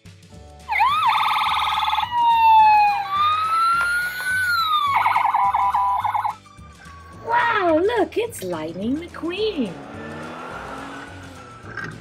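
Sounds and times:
toy fire truck siren: 0.7 - 6.4.

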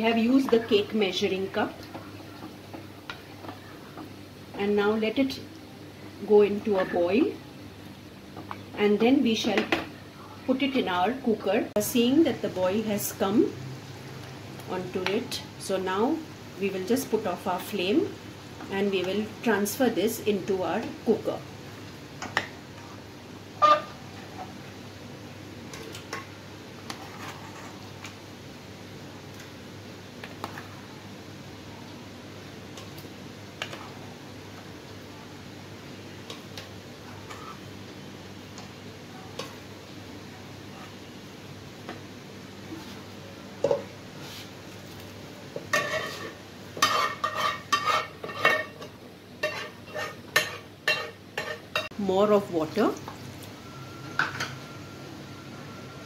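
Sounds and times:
metal spoon scraping frying pan: 26.9 - 27.8, 37.1 - 37.6, 45.7 - 51.9.

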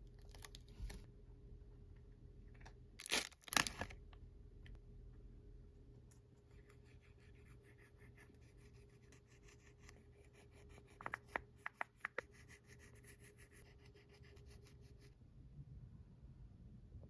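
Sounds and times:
marker rubbing on glossy paper: 6.8 - 15.2.

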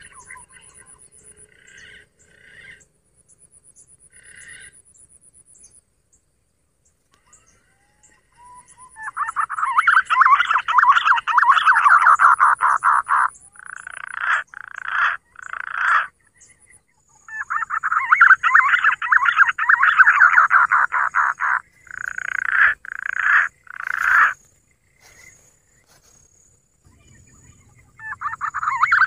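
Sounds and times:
bird caller warbling: 7.2 - 25.4, 26.9 - 29.0.

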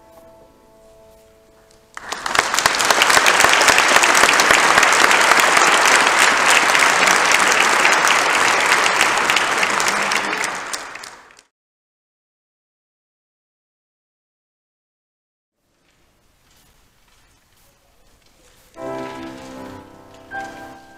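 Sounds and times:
audience applauding: 1.9 - 11.5, 18.8 - 20.9.

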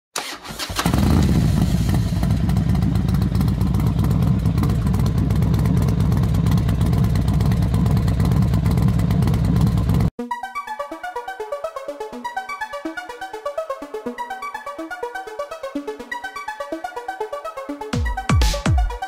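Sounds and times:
engine-like low rumble: 0.8 - 10.1.

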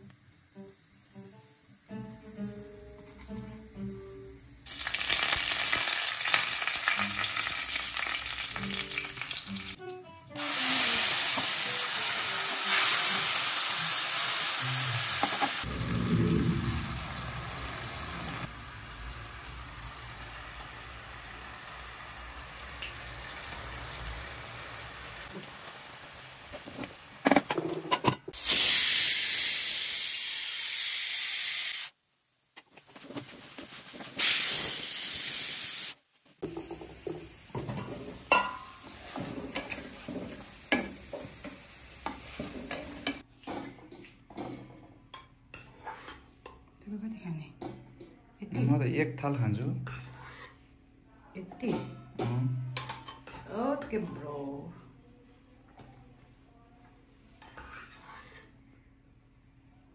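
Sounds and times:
oil sizzling with frying spices: 0.0 - 15.8, 16.7 - 27.6, 28.3 - 46.6, 49.2 - 50.8
greens frying while stirred: 4.6 - 9.8, 10.4 - 15.7, 17.0 - 27.7, 32.7 - 46.6.

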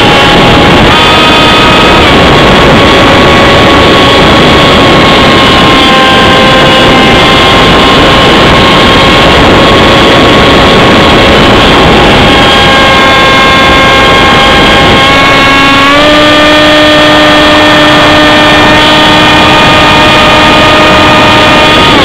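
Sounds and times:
model plane motor whining: 0.0 - 22.0
wind rush: 0.0 - 22.0.

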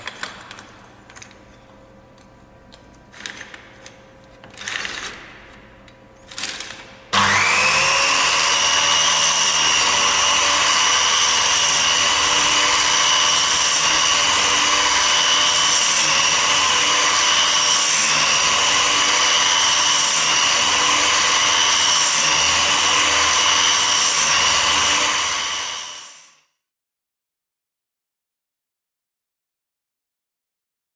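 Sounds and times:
electric motor running: 7.2 - 26.3
grinding wheel on saw chain: 8.2 - 26.4.

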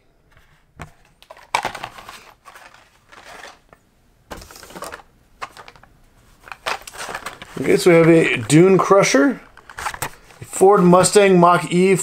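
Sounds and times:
cardboard rustling and scraping: 0.3 - 8.9, 9.6 - 10.4.

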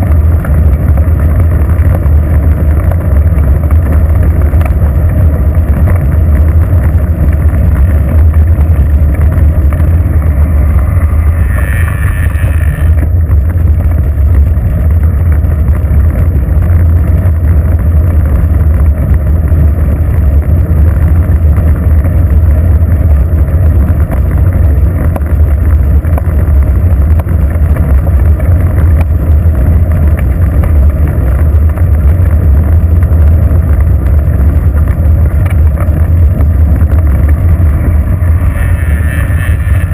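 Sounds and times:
wind buffeting microphone: 0.0 - 39.9
short higher-pitched tone: 10.8 - 13.0.

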